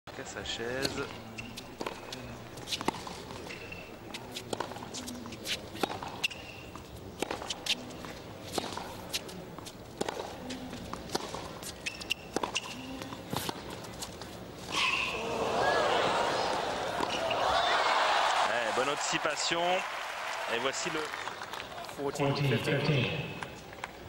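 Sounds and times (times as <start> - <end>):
tennis ball bouncing: 0.6 - 15.2, 16.3 - 17.6
racquet hitting tennis ball: 0.8 - 7.8, 10.0 - 13.7, 16.5 - 17.6
sneaker squeaks: 0.8 - 15.2, 17.0 - 17.5.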